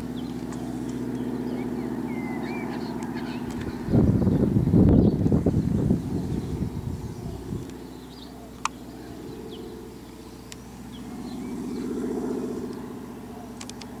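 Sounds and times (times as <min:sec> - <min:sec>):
propeller aircraft droning: 0:00.0 - 0:14.0
sharp clicks: 0:13.6 - 0:13.9.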